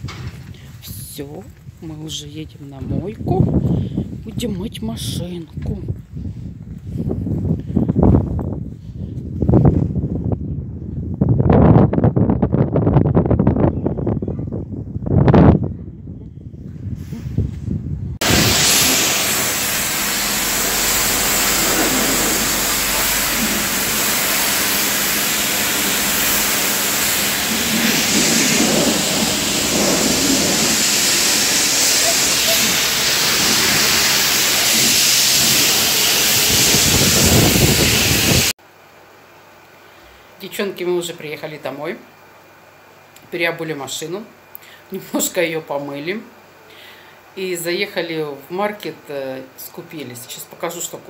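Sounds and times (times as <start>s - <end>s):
pressure washer spraying water: 18.2s - 38.5s.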